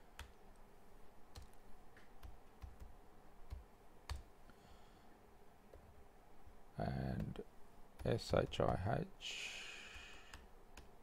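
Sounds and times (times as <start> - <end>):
keyboard and mouse clicks: 1.3 - 4.3, 8.0 - 8.8, 10.3 - 11.0.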